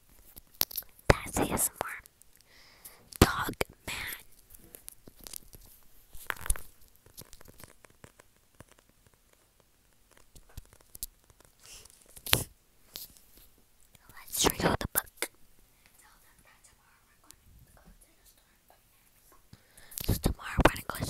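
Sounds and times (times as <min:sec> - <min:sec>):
sharp crackle: 0:00.0 - 0:14.3.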